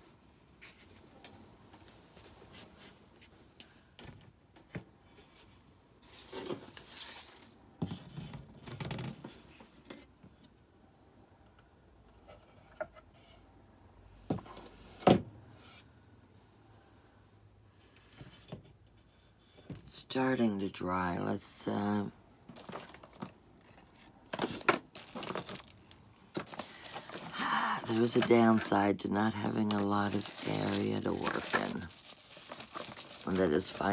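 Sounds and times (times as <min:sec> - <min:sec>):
rustling of craft items: 0:00.0 - 0:10.8, 0:18.1 - 0:33.9.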